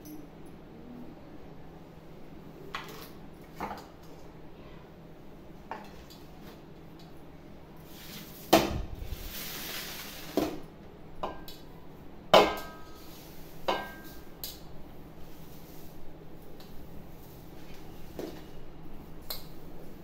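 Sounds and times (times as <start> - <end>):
plate sliding scrape: 7.8 - 10.5.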